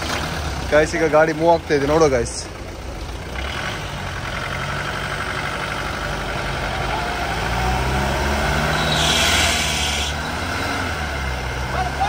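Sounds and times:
vehicle engine running: 0:00.0 - 0:12.0
loud hiss: 0:08.8 - 0:10.2.

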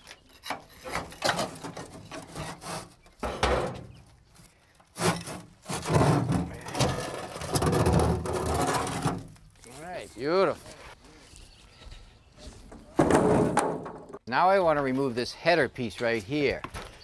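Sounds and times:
bar scraping rotted wood: 0:00.0 - 0:11.0, 0:12.4 - 0:14.2.

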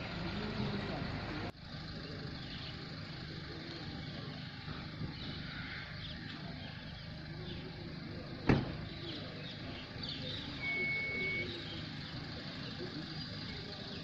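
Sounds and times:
low outdoor rumble: 0:00.0 - 0:14.0
faint bird chirps: 0:03.6 - 0:14.0.

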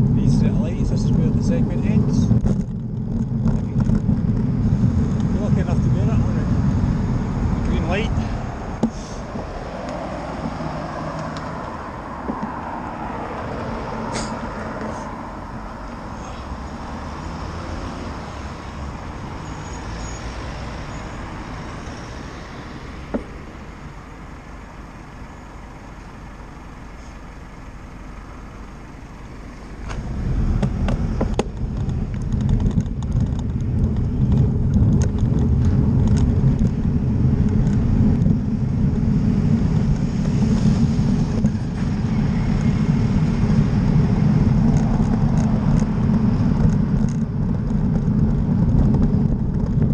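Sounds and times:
wind buffeting camera: 0:00.0 - 0:16.8, 0:29.7 - 0:49.9
road traffic passing: 0:00.0 - 0:49.9
lorry passing close: 0:04.4 - 0:24.0.

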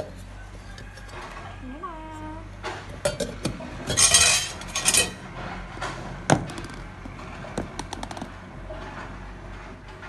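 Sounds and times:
steel containers clinking: 0:03.0 - 0:05.9.

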